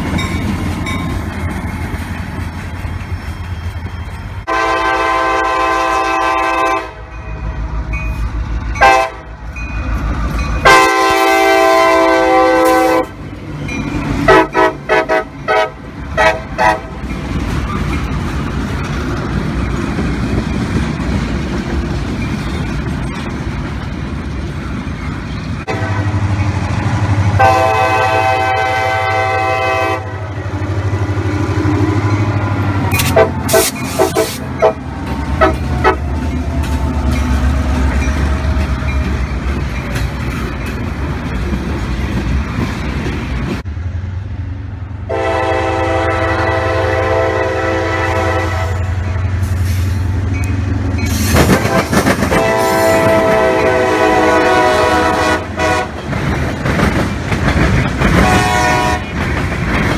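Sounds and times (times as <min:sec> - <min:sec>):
diesel locomotive rumble: 0:00.0 - 0:59.9
locomotive air horn blasts: 0:04.5 - 0:07.1, 0:08.8 - 0:09.3, 0:10.6 - 0:13.2, 0:14.2 - 0:17.0, 0:25.7 - 0:26.3, 0:27.4 - 0:30.4, 0:33.0 - 0:36.2, 0:45.1 - 0:49.1, 0:51.6 - 0:56.0, 0:58.2 - 0:59.1
freight cars rolling by: 0:12.9 - 0:59.9.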